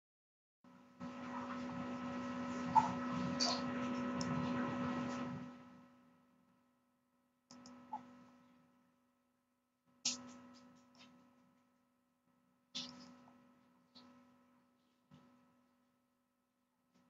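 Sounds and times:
electrical hum with hiss: 0.8 - 6.2
computer mouse clicks: 7.5 - 7.8.

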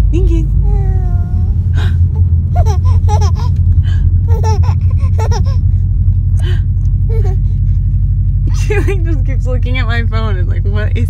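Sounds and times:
car interior rumble: 0.0 - 11.0
infant giggling and squealing: 0.9 - 5.6, 7.1 - 7.6.

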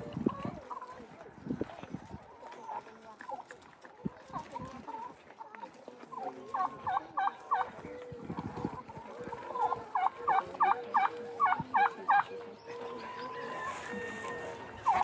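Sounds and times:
turkey calling: 9.6 - 15.0.

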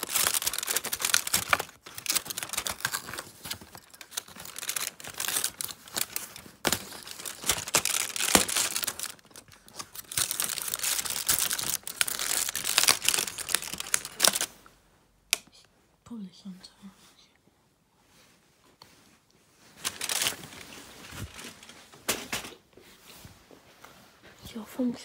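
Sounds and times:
cardboard being torn: 0.0 - 14.5
foil crinkling and rustling: 0.0 - 14.5, 19.7 - 22.0.

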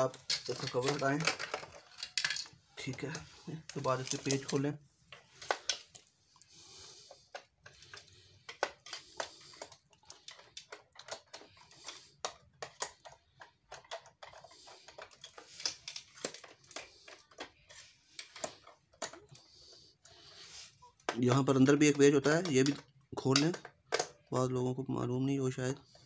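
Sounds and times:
screwdriver clicking and scraping screws: 0.0 - 19.8.

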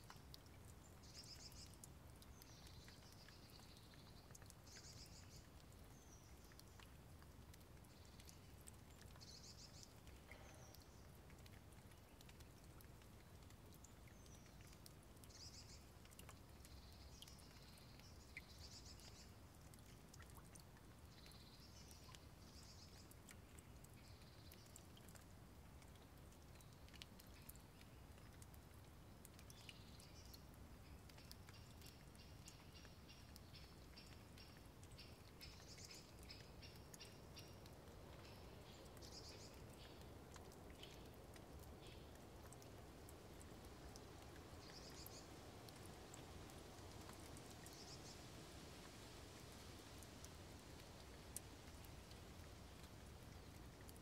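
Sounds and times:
faint ticks: 0.0 - 54.0
faint bird chirps: 44.6 - 45.4.

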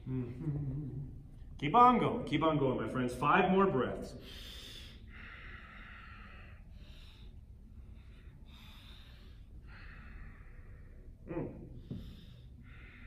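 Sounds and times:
low room hum: 0.0 - 13.0
man breathing deeply: 4.1 - 13.0.

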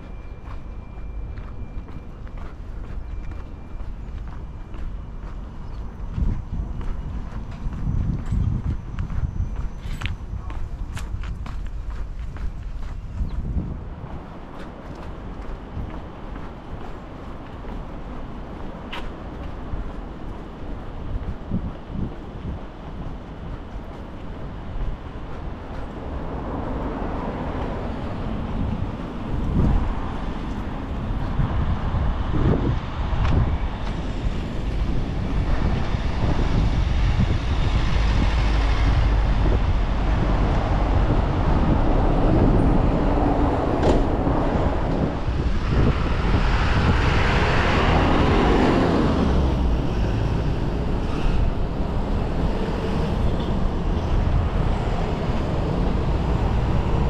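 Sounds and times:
vehicles passing with low rumble: 0.0 - 57.0.

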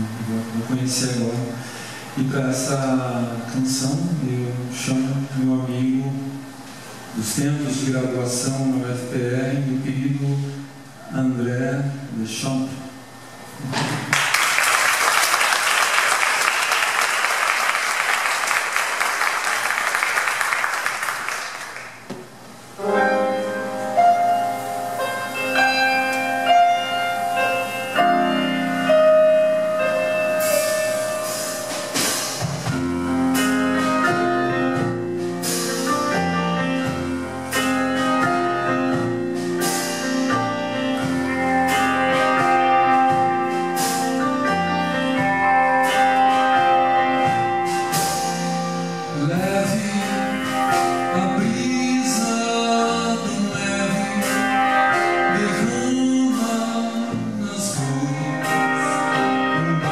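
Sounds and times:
piano: 0.0 - 59.9
audience applauding: 14.0 - 22.1
drums with cymbal strokes: 22.5 - 59.9
double bass: 23.2 - 59.9.

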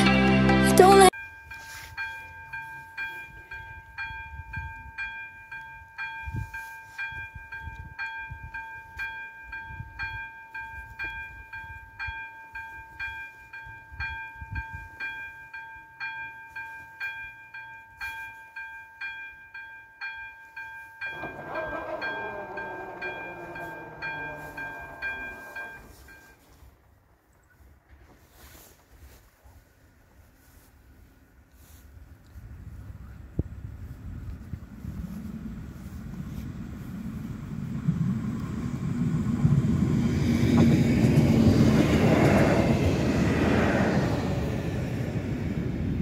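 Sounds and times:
level crossing two-tone bell: 1.1 - 26.4
barrier drive mechanical whine: 21.1 - 26.2
low rumble: 21.2 - 26.3, 32.3 - 46.0.

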